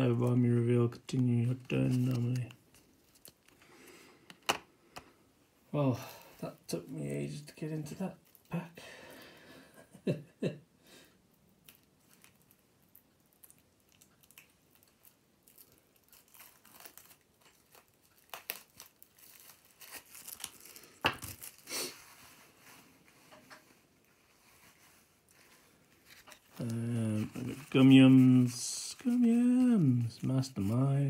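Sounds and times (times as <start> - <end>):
card pack wrapping crinkling: 1.1 - 4.6, 11.5 - 23.4, 24.1 - 31.0
wrapping ripping: 1.4 - 3.6, 7.8 - 8.6, 11.6 - 23.4, 24.0 - 31.0.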